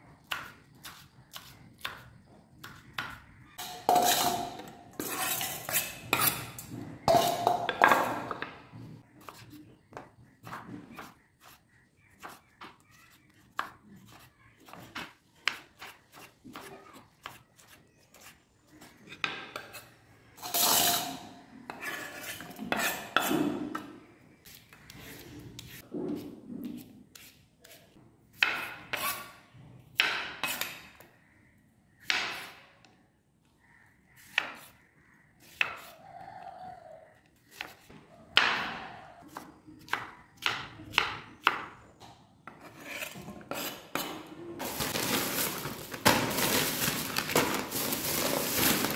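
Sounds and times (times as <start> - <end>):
knife slicing vegetables: 0.2 - 3.1, 39.2 - 41.5
vegetables scraped into steel bowl: 3.6 - 7.5, 20.4 - 23.2.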